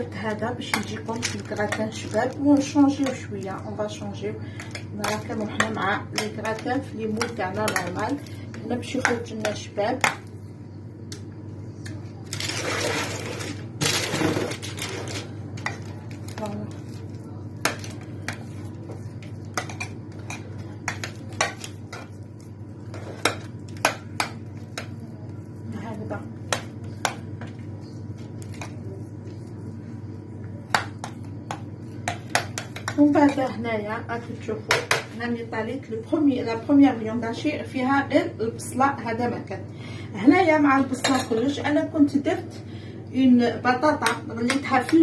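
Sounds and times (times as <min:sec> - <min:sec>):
steady low hum: 0:00.0 - 0:45.0
spoon scraping and rustling: 0:00.3 - 0:03.7, 0:12.3 - 0:29.9.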